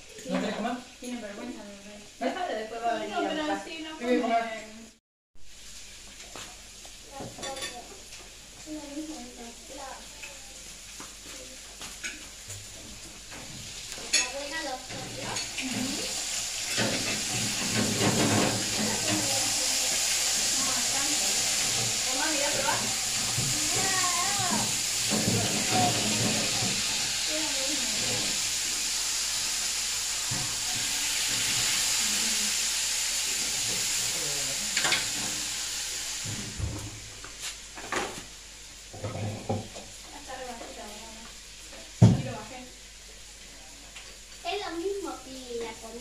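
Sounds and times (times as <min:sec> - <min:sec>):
steady hiss: 0:05.4 - 0:46.0
cutlery and dishes clinking: 0:14.0 - 0:16.0, 0:16.6 - 0:19.2.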